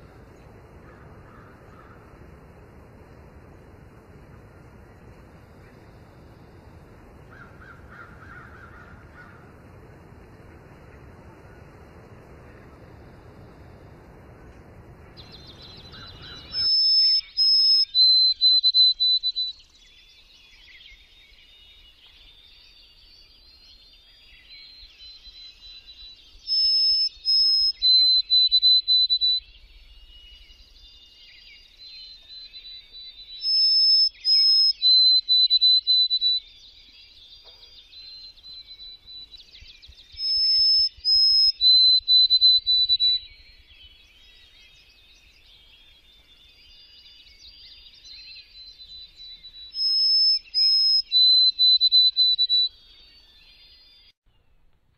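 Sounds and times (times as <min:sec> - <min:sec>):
songbirds chattering: 0:00.0 - 0:13.8, 0:14.4 - 0:54.8
sparrow whistled song: 0:15.2 - 0:54.7.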